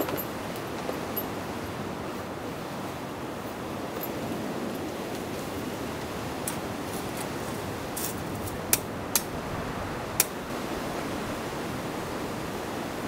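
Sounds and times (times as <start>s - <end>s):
metal camping gear clicking: 0.0s - 1.3s, 6.4s - 9.3s
sea surf washing: 0.0s - 13.0s.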